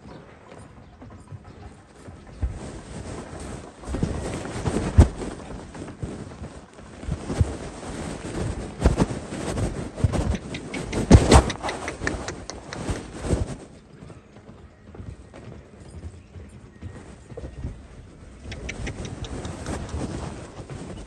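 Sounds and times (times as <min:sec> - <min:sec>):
knocks and scrapes: 0:07.0 - 0:13.6
small sharp clicks: 0:10.2 - 0:13.2, 0:18.5 - 0:20.2.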